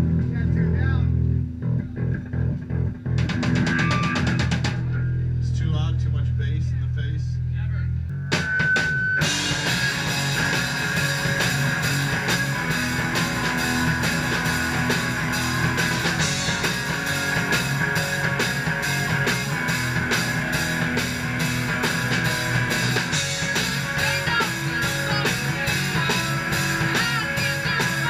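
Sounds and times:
electric guitars: 0.0 - 5.4, 8.2 - 28.0
drum kit beat: 3.0 - 5.1, 8.2 - 28.0.

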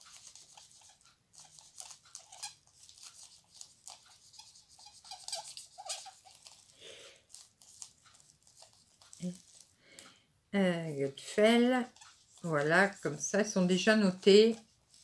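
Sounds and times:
pen squeaks: 0.0 - 6.7, 11.8 - 12.2
pen scratching on paper: 0.0 - 9.7, 11.3 - 15.0.

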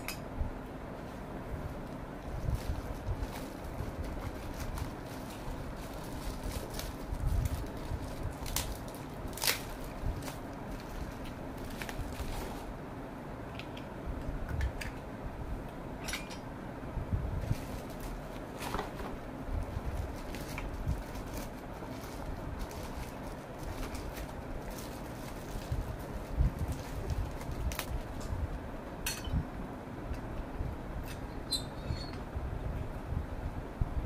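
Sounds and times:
plastic wrapping crinkling: 2.2 - 12.7, 17.4 - 28.2.

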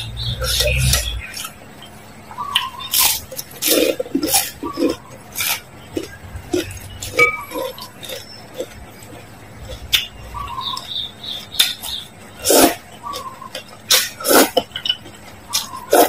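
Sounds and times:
noodle slurp: 12.4 - 13.2.

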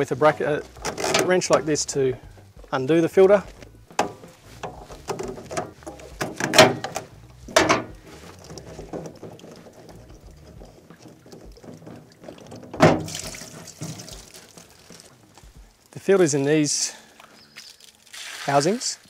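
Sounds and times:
plastic knocks and scrapes: 0.6 - 1.7, 3.5 - 15.6
water splashing: 4.1 - 15.6, 17.8 - 19.0.

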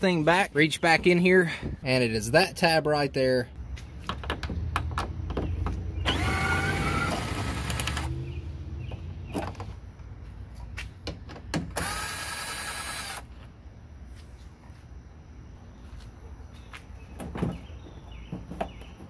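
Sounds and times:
cordless drill spinning: 6.0 - 8.1, 11.8 - 13.3.

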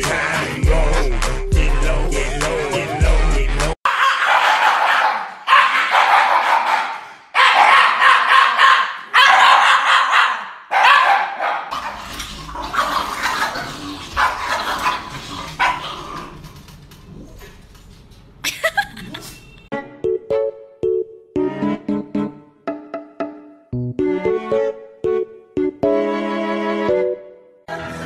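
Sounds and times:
dogs howling: 2.1 - 12.0
dog barks: 3.9 - 12.0, 13.2 - 16.0.

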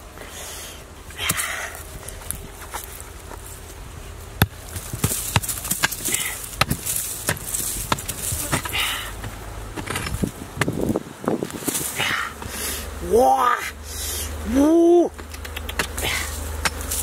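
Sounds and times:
metal tool striking hard earth: 4.4 - 10.8, 15.8 - 17.0.

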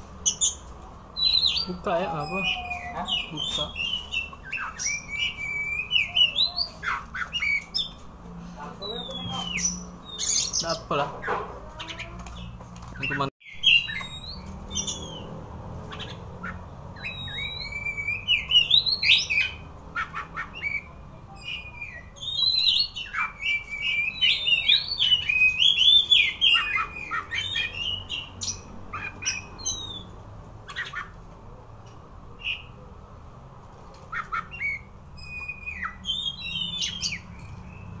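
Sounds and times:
bird singing whistled phrases: 1.2 - 7.9, 8.8 - 10.6, 13.5 - 15.2, 17.0 - 19.6, 20.4 - 28.2, 34.2 - 37.3.

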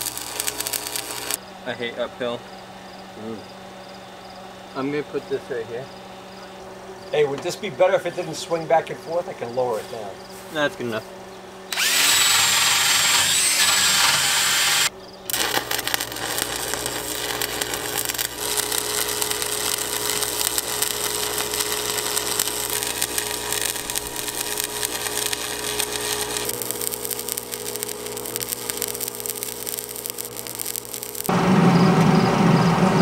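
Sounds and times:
welder hum: 0.0 - 1.4, 11.7 - 33.0
welding arc crackling: 0.0 - 1.4, 11.7 - 31.4.

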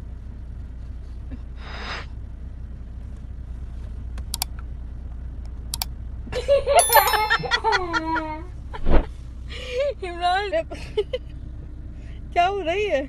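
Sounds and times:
high-pitched multi-tone sound: 6.8 - 7.8.

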